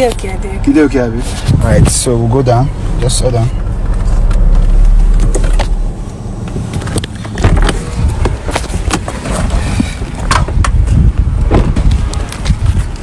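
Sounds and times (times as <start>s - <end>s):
low rumbling handling noise: 0.0s - 13.0s
knocks and clunks: 6.4s - 12.6s.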